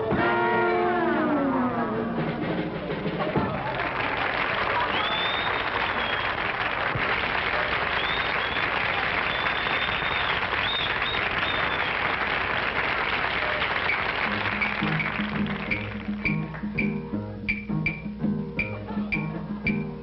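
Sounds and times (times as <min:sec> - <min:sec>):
plucked string bass: 0:00.0 - 0:03.7, 0:14.3 - 0:20.0
jazz band playing: 0:00.0 - 0:03.8, 0:13.8 - 0:20.0
crowd applauding and whistling: 0:03.2 - 0:20.0.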